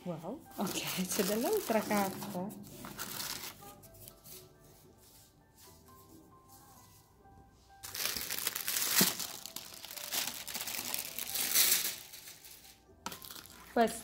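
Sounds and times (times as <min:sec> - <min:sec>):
soft background music: 0:00.0 - 0:14.0
wrapping paper crinkling: 0:00.6 - 0:04.4, 0:07.8 - 0:13.7.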